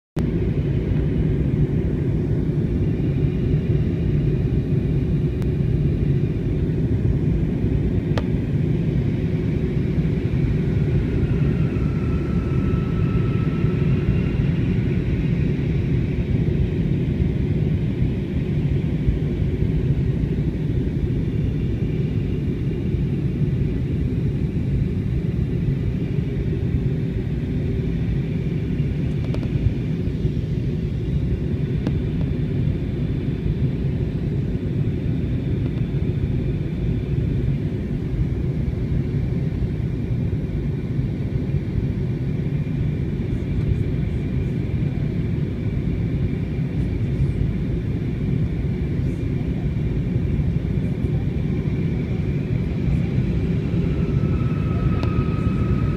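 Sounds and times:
jet airliner cabin rumble: 0.2s - 55.9s.

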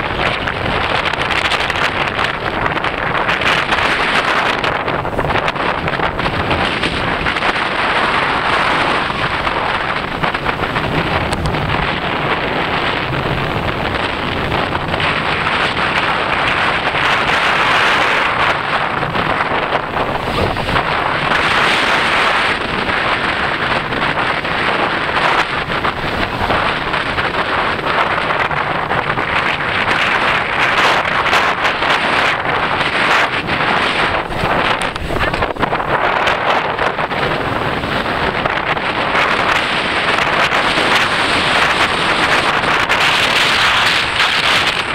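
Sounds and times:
vehicle running and tyre noise: 0.0s - 44.9s
wind rushing over microphone: 0.0s - 44.9s.

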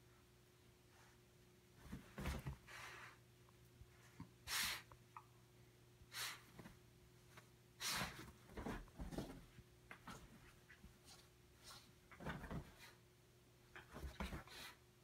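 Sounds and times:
bedding rustling: 0.9s - 3.2s, 6.2s - 13.0s
dog hissing bursts: 4.4s - 4.9s, 6.1s - 6.5s, 7.8s - 8.3s.

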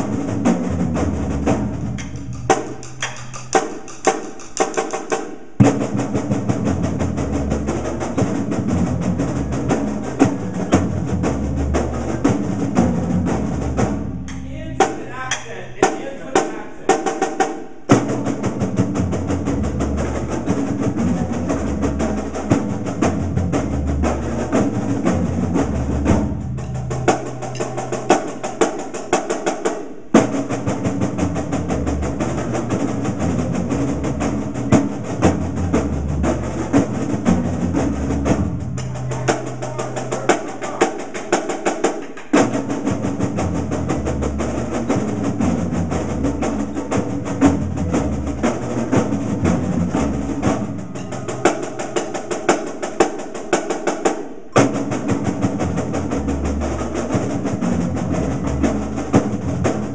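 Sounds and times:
low bass drum beats: 0.0s - 4.9s, 5.6s - 17.1s, 17.9s - 28.6s, 30.2s - 41.5s, 42.3s - 52.7s, 54.6s - 59.9s
fast snare drum strokes: 0.0s - 59.9s.

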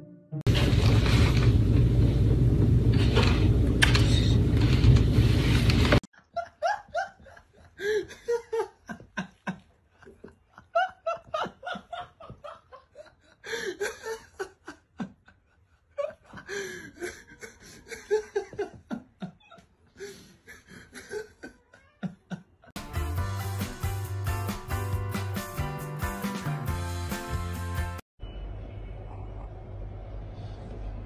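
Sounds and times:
person laughing: 6.2s - 22.7s.

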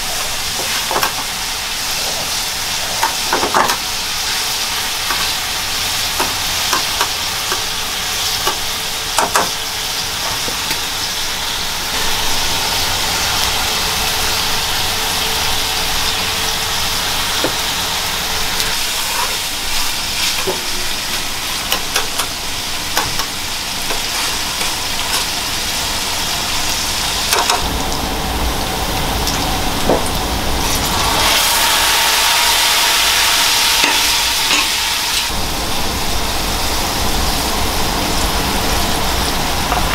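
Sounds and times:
food sizzling in a frying pan: 0.0s - 39.9s
metal tongs scraping a pan: 18.7s - 25.4s, 33.8s - 34.8s.

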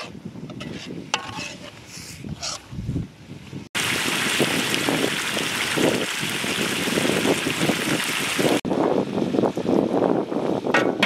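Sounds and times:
wind on microphone: 0.0s - 11.0s
stew sizzling and bubbling in wok: 3.8s - 8.6s.

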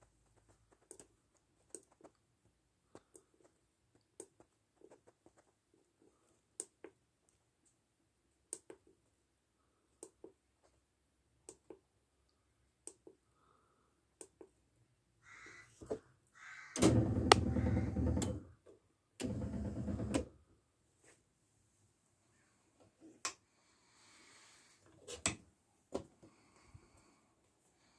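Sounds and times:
electric lift motor running: 16.8s - 18.4s, 19.2s - 20.2s.

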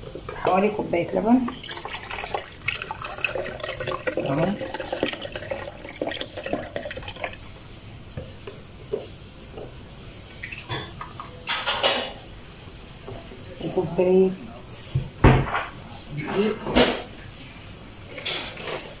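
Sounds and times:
kitchen items clattering: 0.0s - 7.4s, 10.5s - 12.2s, 15.3s - 17.2s, 18.1s - 19.0s
milk pouring into a jar: 1.6s - 7.5s.

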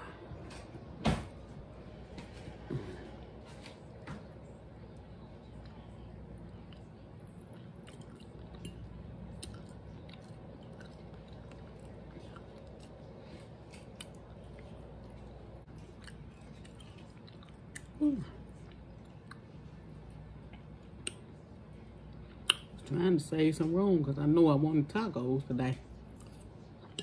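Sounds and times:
chewing and wet mouth sounds: 3.2s - 23.0s, 26.0s - 27.0s.

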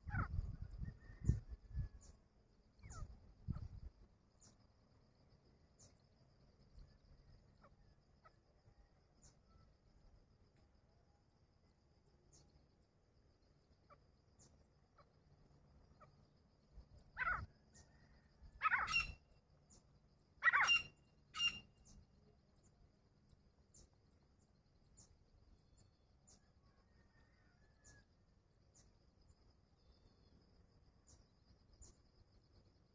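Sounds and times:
francolins calling: 17.2s - 19.2s, 20.4s - 22.0s.

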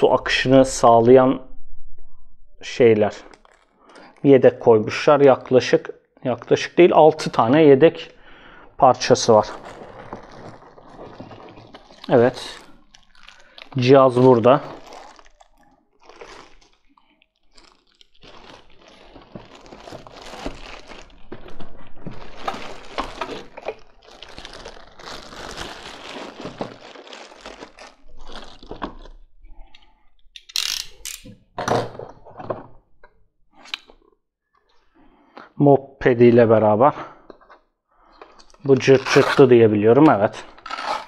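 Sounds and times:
plastic bag crinkling: 3.2s - 4.2s, 9.0s - 29.2s.

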